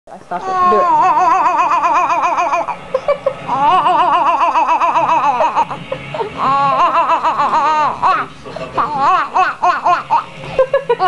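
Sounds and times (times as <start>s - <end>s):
baby warbling ahh: 0.4s - 2.7s.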